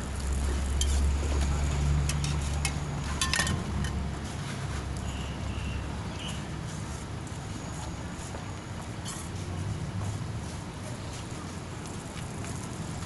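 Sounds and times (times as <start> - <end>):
passing vehicle engine rumble: 0.0 - 13.0
metal spatula clinking on griddle: 2.0 - 4.0.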